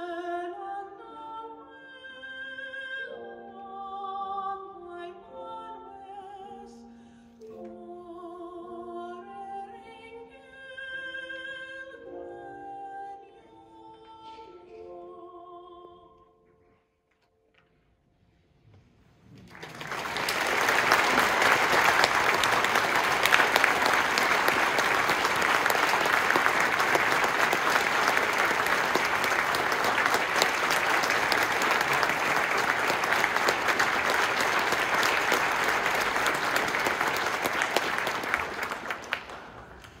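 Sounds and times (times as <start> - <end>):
audience applauding: 19.3 - 40.0.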